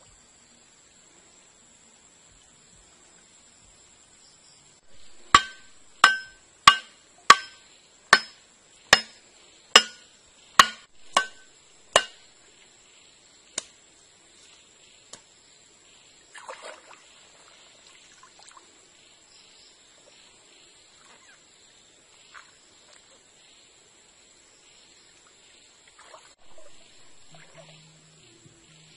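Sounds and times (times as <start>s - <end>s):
machete striking wooden stake: 5.0s - 9.2s, 9.8s - 12.2s.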